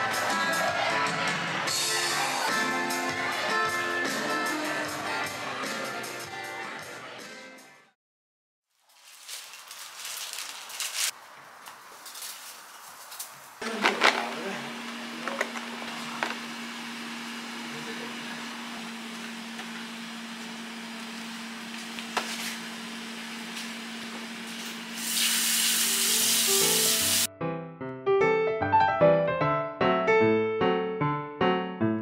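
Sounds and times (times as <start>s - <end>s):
piano music: 25.9s - 32.0s.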